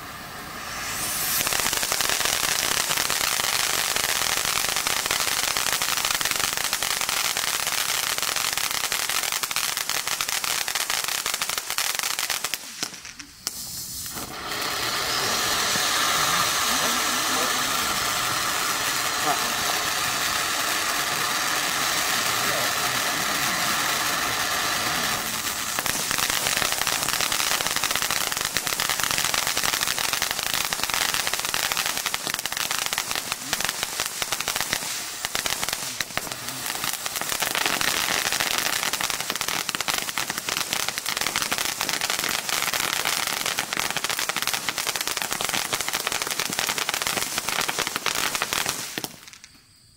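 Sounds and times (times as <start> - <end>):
firework fountain hissing: 0.0 - 49.6
crackling pops: 11.6 - 15.2, 46.4 - 49.7.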